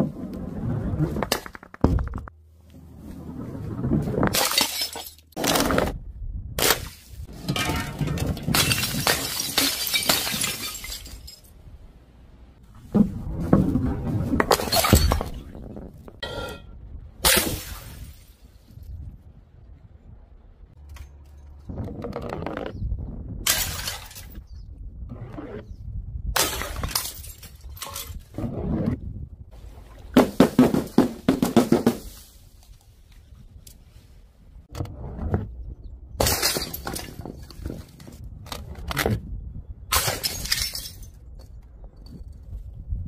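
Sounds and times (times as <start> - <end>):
objects smashing on stone paving: 4.1 - 6.0, 6.6 - 11.6, 13.5 - 16.5, 23.4 - 24.5, 26.4 - 28.2, 36.2 - 38.2, 39.9 - 41.3
glass jars shattering: 4.3 - 5.4, 7.4 - 11.6, 14.6 - 15.5, 23.5 - 24.4, 26.4 - 28.2, 36.2 - 37.5, 39.9 - 41.2.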